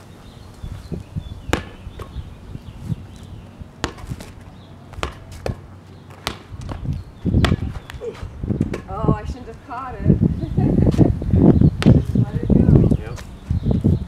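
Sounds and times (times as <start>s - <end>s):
ball thump: 1.5s - 2.2s, 3.8s - 4.4s, 5.0s - 8.9s, 11.8s - 12.2s
rubber ball smacking on concrete: 1.5s - 2.2s, 3.8s - 4.3s, 4.9s - 5.6s, 6.2s - 8.0s, 11.8s - 12.1s.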